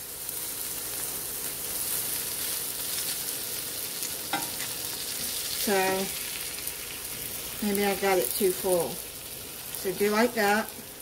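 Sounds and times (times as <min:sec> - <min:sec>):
omelette sizzling in a frying pan: 0:00.0 - 0:11.0
spatula and fork on pan: 0:04.0 - 0:06.3.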